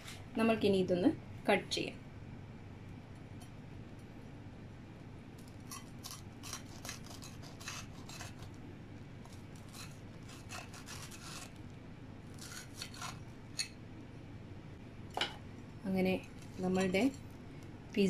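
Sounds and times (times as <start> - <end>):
knife sawing through pizza: 5.7 - 8.5, 9.6 - 11.6, 12.3 - 13.2.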